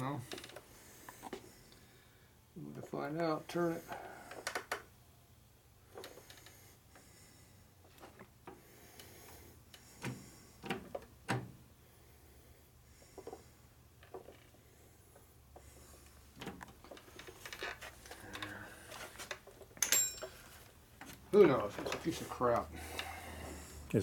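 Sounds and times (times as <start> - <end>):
metal tools clinking and knocking: 19.7 - 20.7.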